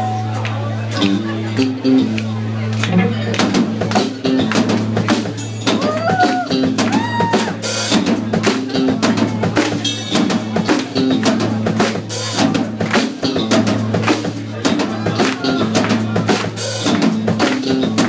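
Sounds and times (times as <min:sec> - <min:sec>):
live rock band playing: 0:00.0 - 0:18.0.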